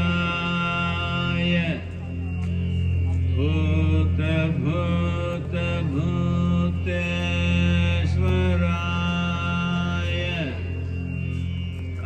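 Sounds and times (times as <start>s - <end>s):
person singing a chant: 0.0s - 2.1s, 3.2s - 10.9s
steady low drone: 0.0s - 12.0s.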